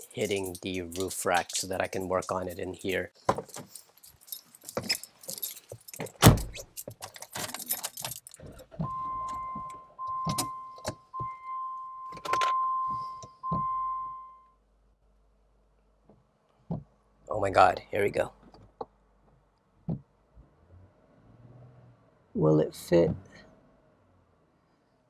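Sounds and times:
electronic warning chime: 8.8 - 14.5.

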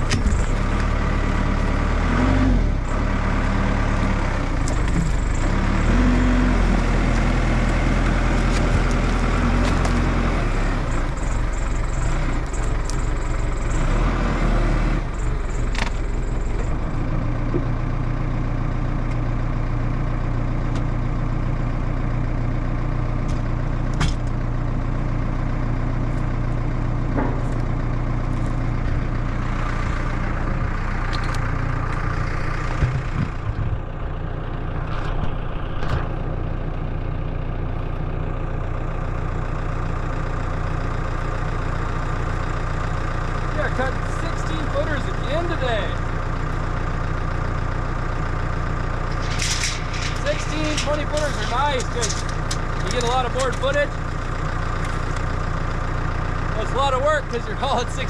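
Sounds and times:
diesel engine running: 0.0 - 58.0
sharp knocks and clunks: 27.1 - 27.6.

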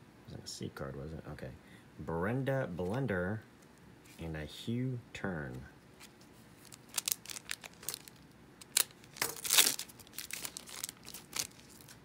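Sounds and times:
foil wrappers crinkling: 6.0 - 12.0.

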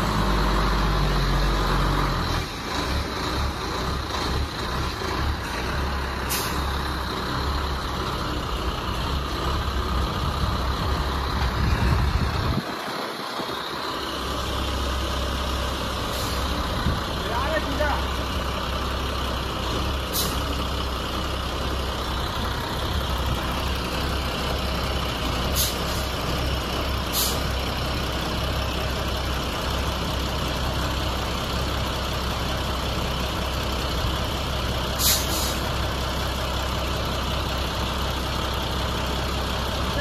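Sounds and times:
wheel loader diesel engine: 0.0 - 40.0
short hisses: 6.3 - 6.7, 16.1 - 16.6, 20.1 - 20.5, 25.5 - 26.1, 27.1 - 27.4, 35.0 - 35.6.

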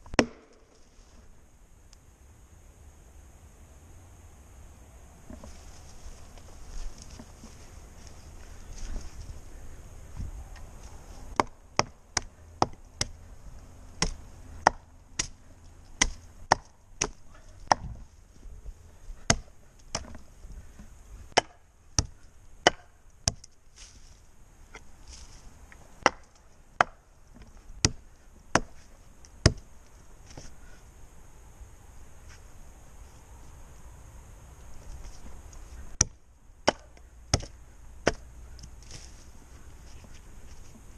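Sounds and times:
axe chopping wood: 0.1 - 0.7, 11.3 - 13.2, 14.0 - 18.0, 19.2 - 20.2, 20.8 - 23.5, 26.0 - 28.8, 29.4 - 29.7, 35.9 - 39.1.

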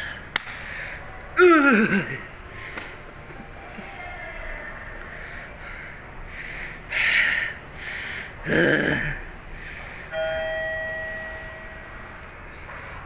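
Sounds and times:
elevator chime ding: 10.1 - 12.2.

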